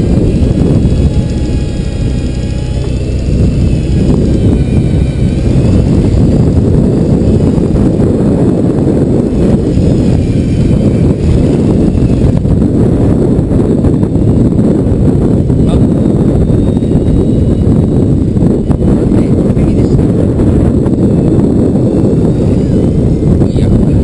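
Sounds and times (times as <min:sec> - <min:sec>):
boat engine rumble: 0:00.0 - 0:24.0
faint high whine: 0:00.0 - 0:24.0
wind noise on microphone: 0:00.0 - 0:24.0.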